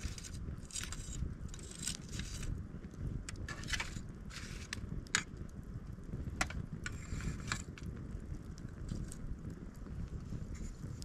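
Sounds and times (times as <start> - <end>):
fire popping: 0.0 - 11.0
low rumble: 0.0 - 11.0
wood fire crackling: 0.0 - 11.0.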